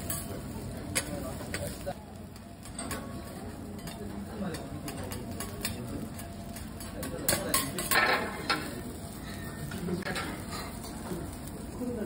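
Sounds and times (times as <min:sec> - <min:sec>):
metal spatulas clattering on griddle: 0:00.0 - 0:01.8, 0:02.6 - 0:11.2
spatula scraping griddle: 0:02.6 - 0:11.2.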